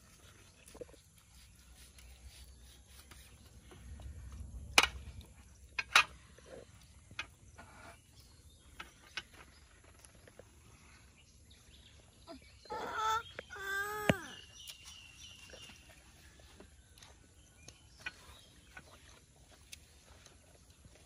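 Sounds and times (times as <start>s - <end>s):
low rumble: 3.4s - 7.5s.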